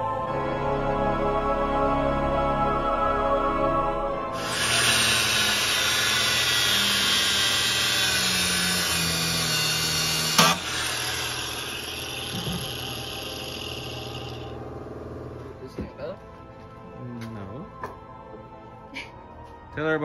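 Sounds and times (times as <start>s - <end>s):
angle grinder cutting metal: 4.4s - 14.6s.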